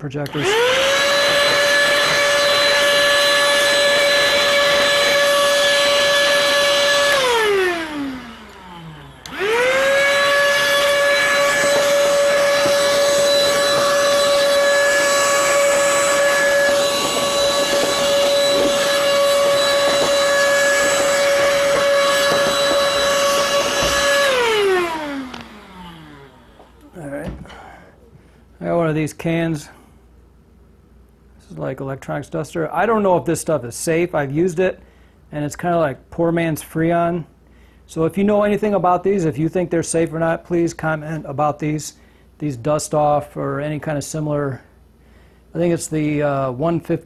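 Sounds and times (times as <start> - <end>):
handheld vacuum whining: 0.0 - 27.8.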